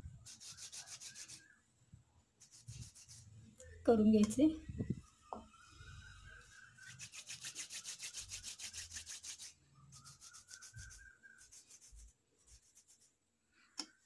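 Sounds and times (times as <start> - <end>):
palms rubbing dough: 0.2 - 1.6, 2.4 - 3.3, 6.4 - 13.2.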